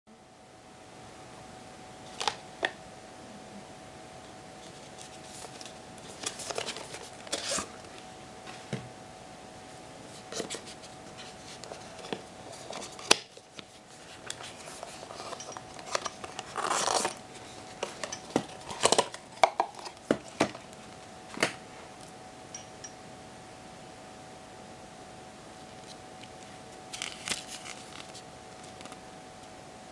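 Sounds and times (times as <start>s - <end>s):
faint steady hum: 0.1s - 29.9s
cardboard packaging rustling: 4.6s - 8.0s, 10.2s - 21.0s, 25.7s - 29.0s.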